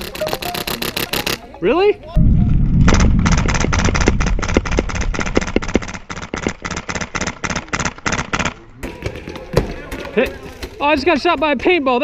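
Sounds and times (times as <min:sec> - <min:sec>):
low rumble: 0:02.2 - 0:06.6
airsoft rifle shots: 0:02.8 - 0:08.6.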